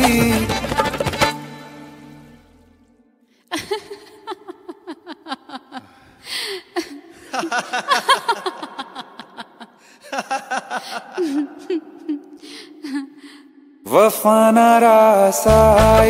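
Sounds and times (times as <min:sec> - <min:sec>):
person laughing: 0:03.5 - 0:13.2
breathy gasp: 0:05.8 - 0:07.2, 0:12.4 - 0:13.8.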